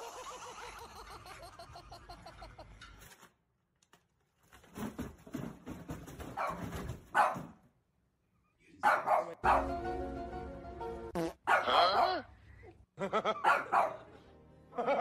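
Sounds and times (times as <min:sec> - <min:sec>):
dog barking and yowling: 0:11.5 - 0:12.3.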